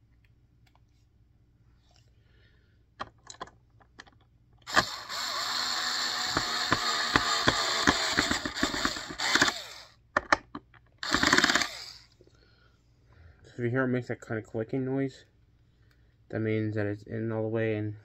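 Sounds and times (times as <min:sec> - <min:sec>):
drill clutch ratcheting clicks: 0:03.2 - 0:12.2
cordless drill motor whirring: 0:04.6 - 0:10.0, 0:11.0 - 0:12.2.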